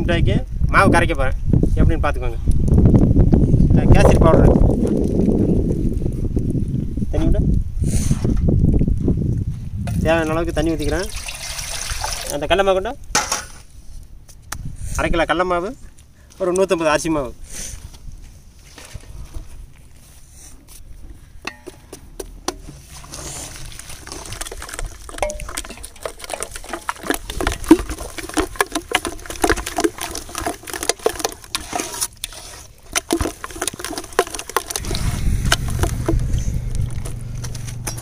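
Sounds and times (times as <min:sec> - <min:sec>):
batter mixed by hand: 0:22.2 - 0:38.0
low steady rumble: 0:22.7 - 0:38.0.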